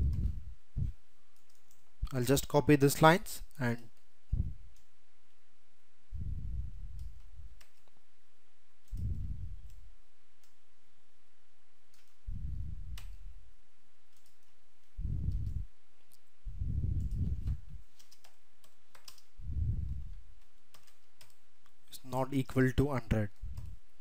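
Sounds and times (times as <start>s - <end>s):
dull low rumbles: 0.0s - 1.0s, 6.1s - 7.1s, 15.0s - 15.7s, 16.4s - 17.8s
mouse and keyboard clicks: 17.0s - 19.3s.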